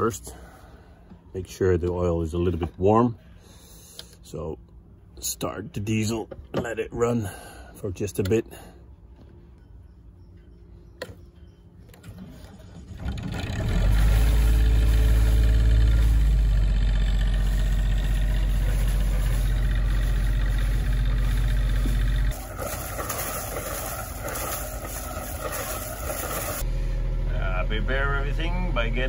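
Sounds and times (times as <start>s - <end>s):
diesel engine idling: 12.3s - 29.0s
water splashing from exhaust: 12.5s - 26.6s.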